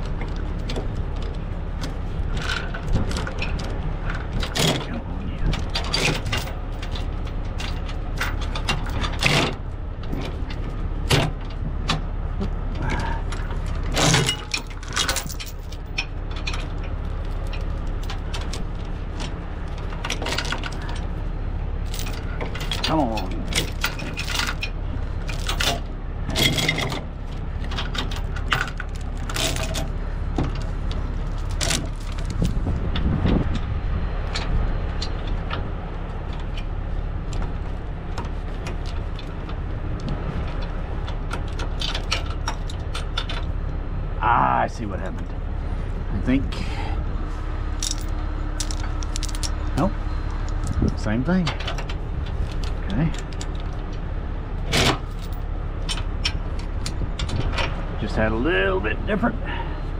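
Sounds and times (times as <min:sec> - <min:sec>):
truck engine idling: 0:00.0 - 0:59.9
steel chains clanking: 0:02.2 - 0:12.0, 0:12.8 - 0:32.7, 0:40.5 - 0:43.6, 0:47.7 - 0:54.0, 0:54.6 - 0:57.7.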